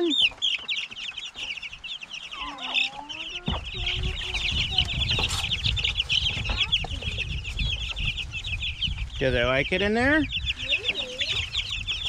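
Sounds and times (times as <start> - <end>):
chicks peeping: 0.0 - 12.0
low rumbling noise: 2.4 - 12.0.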